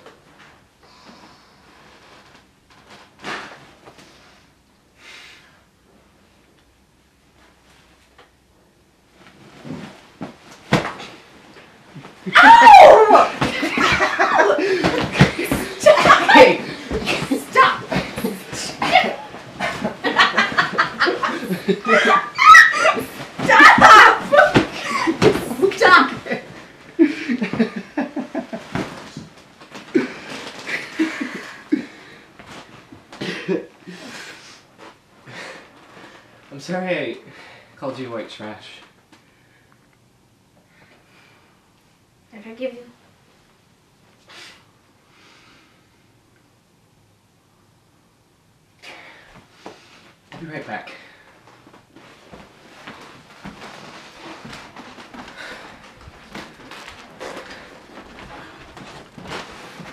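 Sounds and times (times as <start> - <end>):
fabric rustling: 9.1 - 33.2, 51.5 - 59.9
person speaking: 14.1 - 26.4
man gasping: 14.6 - 15.8.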